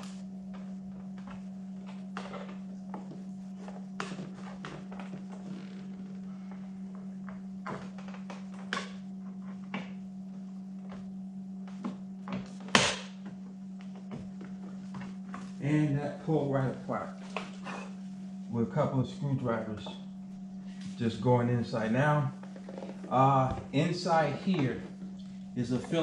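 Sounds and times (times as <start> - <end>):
steady low hum: 0.0 - 26.0.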